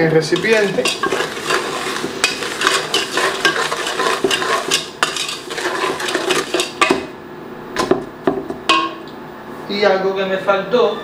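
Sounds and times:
wooden spoon scraping pot: 0.3s - 7.0s.

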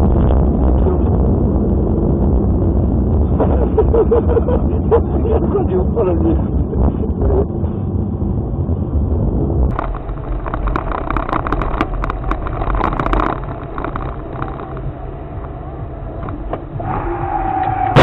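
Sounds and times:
car engine and road noise: 0.0s - 18.0s
sharp irregular clicks: 9.7s - 15.6s.

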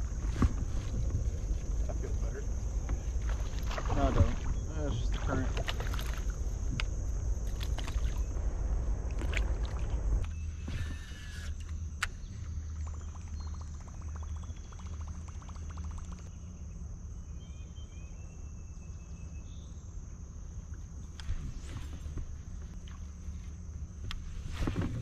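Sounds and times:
wind and water rumble: 0.0s - 13.9s, 20.6s - 25.0s
insects droning: 0.0s - 25.0s.

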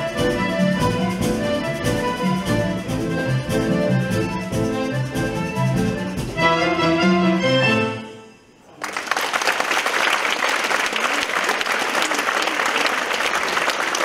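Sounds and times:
accordion orchestra chord: 0.0s - 8.6s
audience applause: 8.7s - 14.0s.

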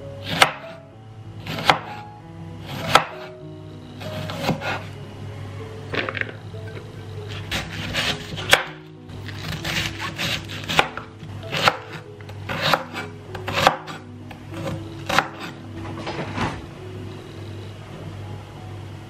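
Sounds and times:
cleaver chopping cabbage on board: 0.2s - 0.8s, 1.5s - 2.0s, 2.7s - 3.3s, 4.0s - 4.9s, 7.3s - 8.8s, 9.4s - 14.0s, 14.6s - 15.6s.

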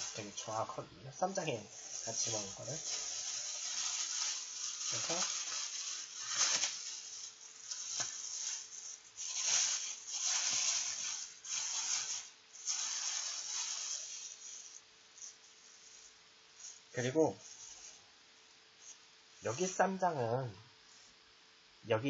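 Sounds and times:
plastic bag crinkling and rustling: 0.0s - 0.7s, 1.3s - 14.4s.

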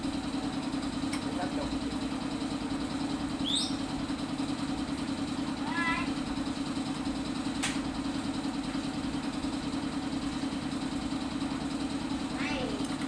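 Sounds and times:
steady machine hum: 0.0s - 13.0s
sharp click: 7.6s - 7.8s.

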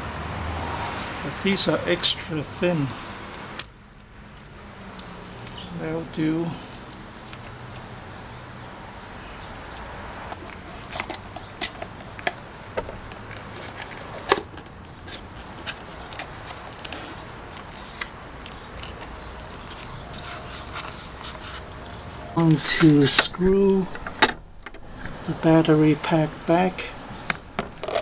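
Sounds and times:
faint background noise: 0.0s - 28.0s
hands handling wiring: 9.5s - 25.4s.

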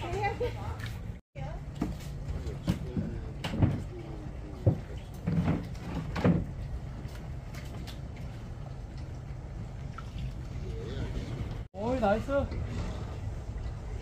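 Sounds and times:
irregular knocks and clunks: 4.6s - 6.6s.

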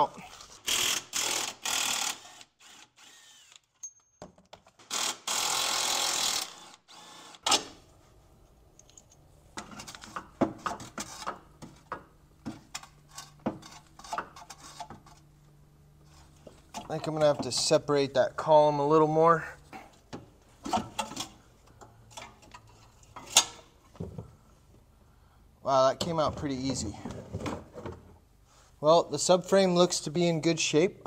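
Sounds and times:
cordless power wrench running: 0.7s - 3.7s, 4.9s - 7.4s.

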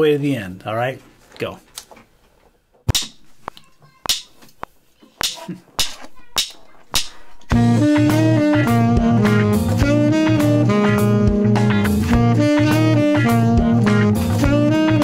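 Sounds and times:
blues backing track: 6.2s - 15.0s
tenor saxophone playing: 7.5s - 15.0s.

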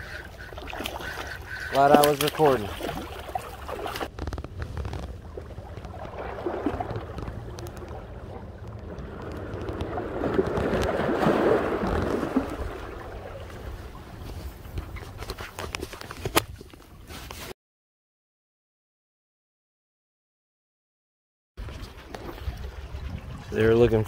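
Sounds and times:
wind buffeting microphone: 4.0s - 15.2s, 21.6s - 24.0s
waves washing in: 4.7s - 14.7s.

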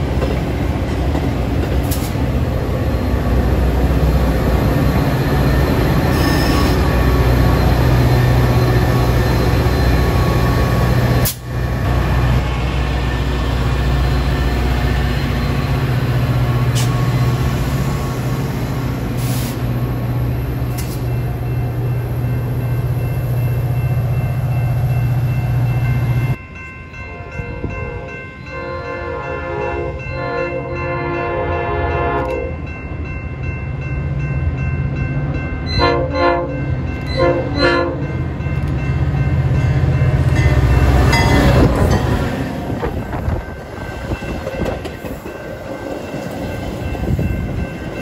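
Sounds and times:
diesel locomotive engine drone: 0.0s - 48.0s
train approaching: 0.0s - 48.0s
train horn: 6.1s - 7.0s, 27.1s - 32.6s, 35.7s - 38.1s.

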